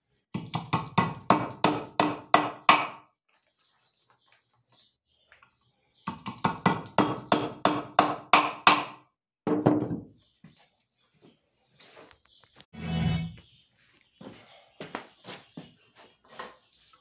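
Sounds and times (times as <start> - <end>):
hammer driving nails into wood: 6.1 - 9.0.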